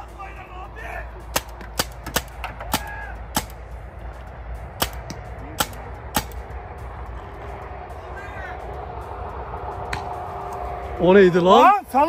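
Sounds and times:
paintball marker shots cracking: 1.3 - 3.6, 4.8 - 6.4.

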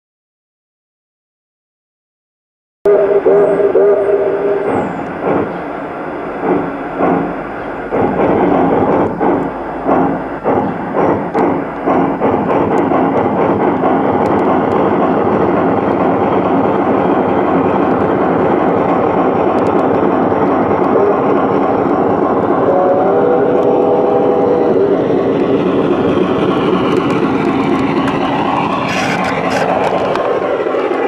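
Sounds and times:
model train wheels on track: 3.2 - 31.0.

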